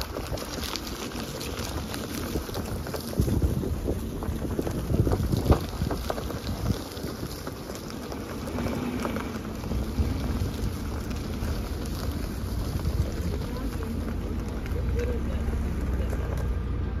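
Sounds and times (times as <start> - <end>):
wind buffeting microphone: 0.0 - 16.8.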